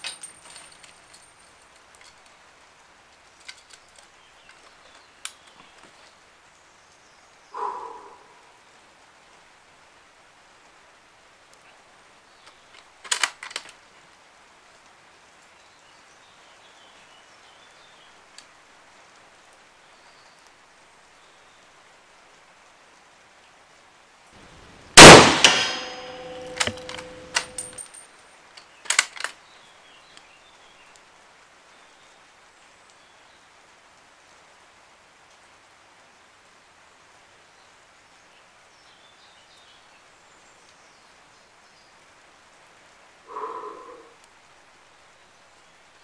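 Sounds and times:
rifle bolt clacking: 0:13.0 - 0:13.7, 0:25.0 - 0:28.0, 0:28.9 - 0:29.3
rifle shot with metallic ringing: 0:25.0 - 0:27.9.

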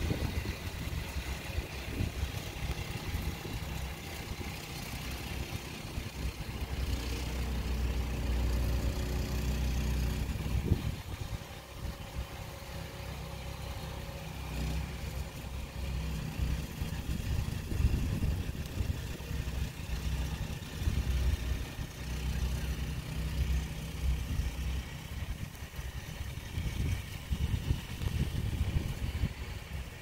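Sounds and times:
snow blower engine running: 0:00.0 - 0:30.0.

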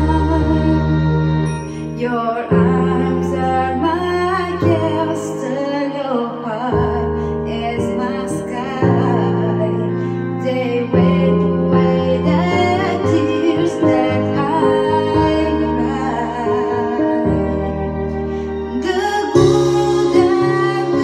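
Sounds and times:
woman singing into microphone: 0:00.0 - 0:17.8, 0:18.6 - 0:21.0
backing music chords: 0:11.1 - 0:21.0.

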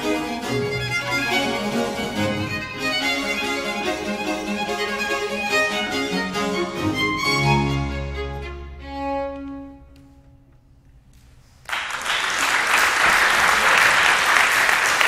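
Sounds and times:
string ensemble held chord: 0:00.0 - 0:09.9
audience applause: 0:11.7 - 0:15.0.

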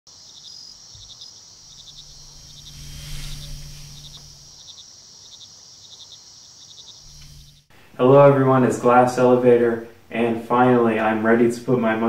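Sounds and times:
crickets chirping: 0:00.1 - 0:12.0
low hum: 0:01.6 - 0:04.6, 0:07.0 - 0:10.2.

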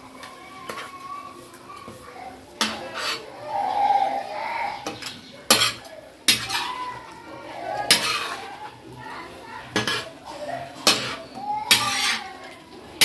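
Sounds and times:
metal spatula scraping a pan: 0:00.7 - 0:01.0, 0:02.6 - 0:13.0
meat frying in oil: 0:04.8 - 0:09.1.

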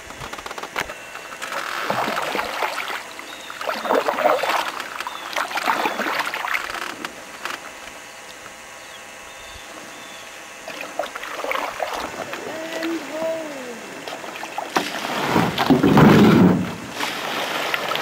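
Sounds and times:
water swishing and splashing: 0:01.4 - 0:07.0, 0:10.6 - 0:18.0.

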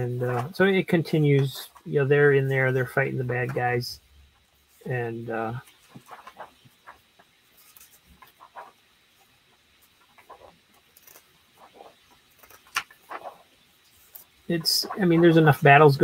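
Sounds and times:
paper pages flipping: 0:05.8 - 0:08.8, 0:10.0 - 0:15.7.

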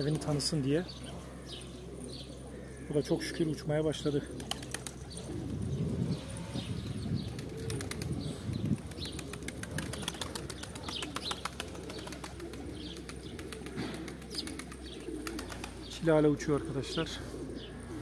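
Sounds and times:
pigeons cooing: 0:00.0 - 0:18.0
wings flapping and clapping: 0:04.4 - 0:05.1, 0:07.3 - 0:15.8.

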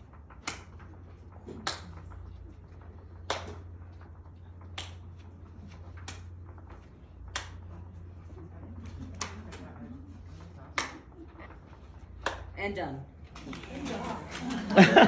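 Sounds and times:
hand claps: 0:00.1 - 0:08.1, 0:08.8 - 0:12.6.

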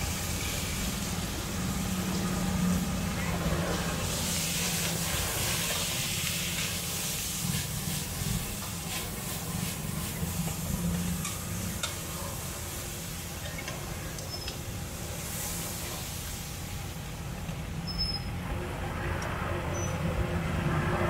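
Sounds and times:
food frying sizzle: 0:03.8 - 0:17.0.

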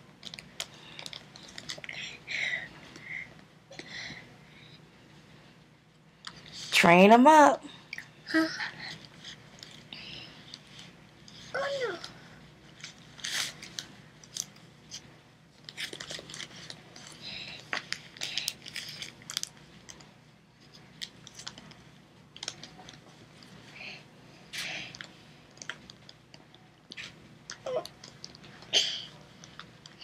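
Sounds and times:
plastic crinkling and rustling: 0:00.2 - 0:01.9, 0:15.6 - 0:23.5.

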